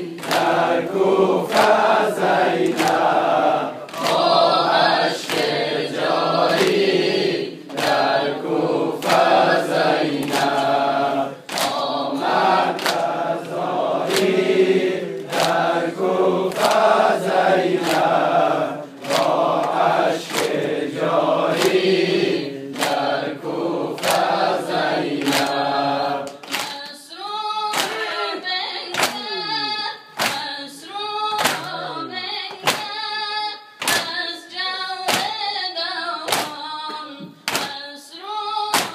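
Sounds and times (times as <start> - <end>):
men chanting in unison: 0.0 - 26.4
chest beating slaps: 30.2 - 30.5.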